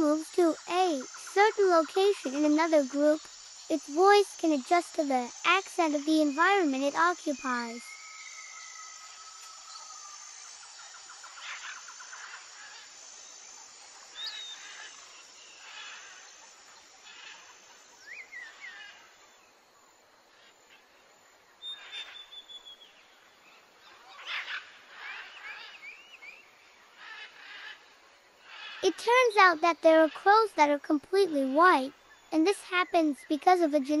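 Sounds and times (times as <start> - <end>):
rising bird chirps: 4.8 - 13.4.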